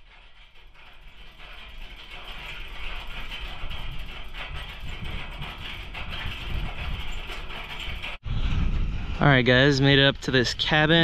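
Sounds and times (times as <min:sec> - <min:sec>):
metal windmill rattling: 0:00.0 - 0:11.0
wind buffeting microphone: 0:00.2 - 0:11.0.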